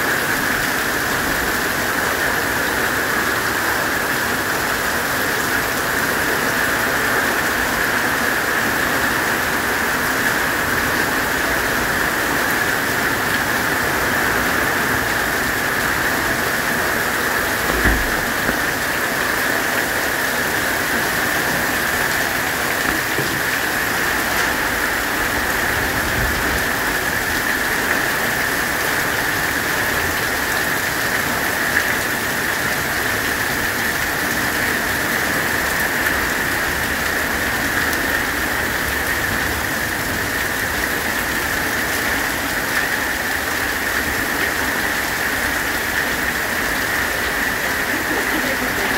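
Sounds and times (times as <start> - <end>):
heavy rain pouring: 0.0 - 48.9
short thump: 17.7 - 18.7.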